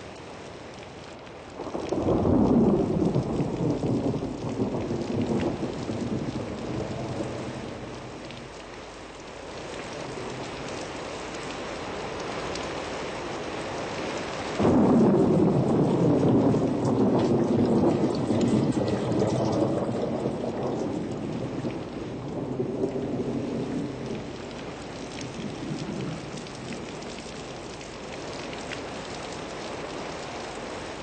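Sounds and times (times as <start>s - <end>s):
steady rain: 0.0s - 31.0s
thunder rumbling: 1.5s - 8.7s, 14.6s - 29.1s.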